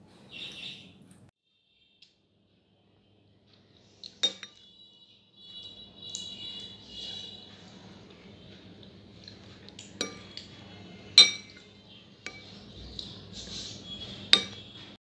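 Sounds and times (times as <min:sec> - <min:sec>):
spoon clinking on plate: 0:04.2 - 0:04.6, 0:09.8 - 0:10.5, 0:11.1 - 0:13.1, 0:13.7 - 0:14.7.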